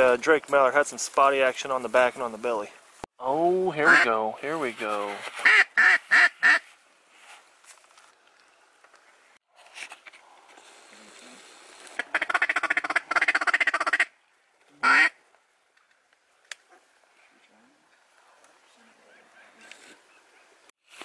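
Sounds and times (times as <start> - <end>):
duck call quacking: 3.8 - 4.1, 5.4 - 6.6, 12.0 - 14.1, 14.8 - 15.2.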